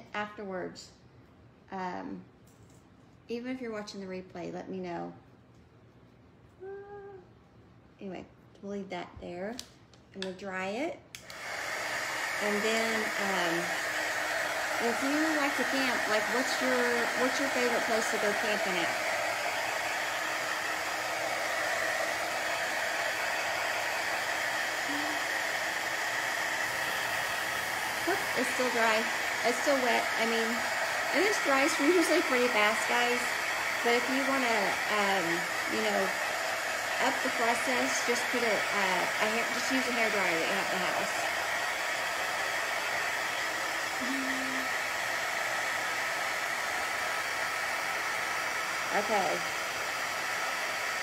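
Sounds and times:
handheld electric dryer blowing: 0:11.1 - 0:51.0.

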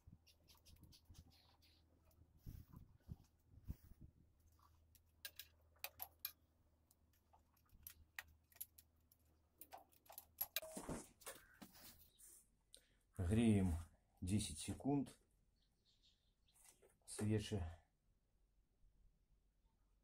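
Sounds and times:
faint metallic clicks and clinks: 0:04.5 - 0:10.8.

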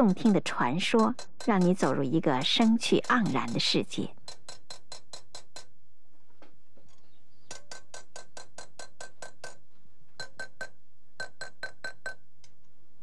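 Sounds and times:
hammer tapping metal punch: 0:07.5 - 0:09.6.

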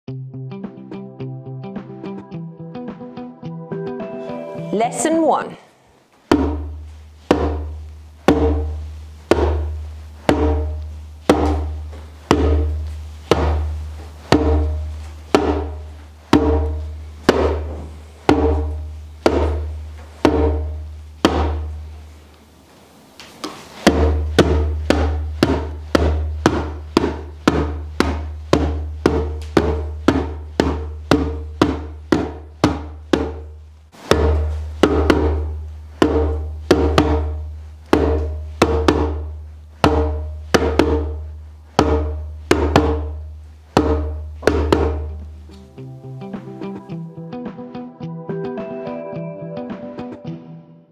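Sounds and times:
djembe bass strokes: 0:06.3 - 0:22.0, 0:23.8 - 0:47.7.

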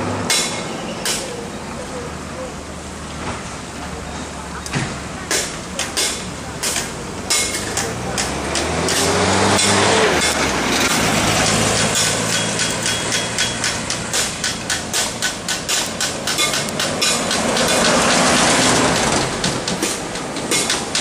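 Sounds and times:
vehicle engine passing: 0:06.4 - 0:20.5.

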